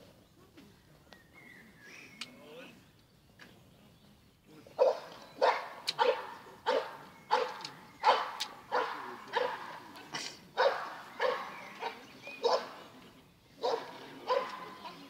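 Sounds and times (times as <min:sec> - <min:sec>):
dog barking: 0:04.8 - 0:09.8, 0:10.6 - 0:12.8, 0:13.6 - 0:15.0.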